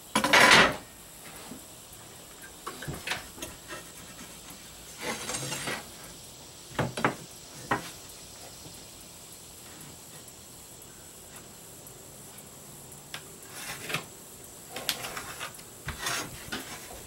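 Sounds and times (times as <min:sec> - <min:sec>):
metal square scraping on plywood: 0:05.0 - 0:05.9, 0:13.5 - 0:14.1, 0:14.8 - 0:17.0.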